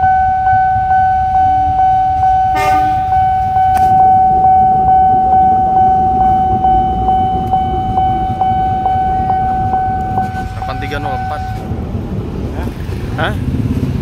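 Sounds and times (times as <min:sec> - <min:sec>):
level crossing alarm tone: 0:00.0 - 0:11.8
diesel locomotive rumble: 0:00.0 - 0:14.0
motorcycles idling: 0:00.0 - 0:14.0.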